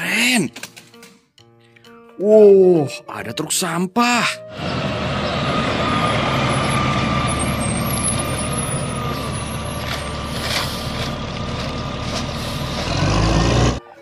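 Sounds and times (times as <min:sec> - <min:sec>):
garbage truck engine rumble: 0:04.5 - 0:13.9.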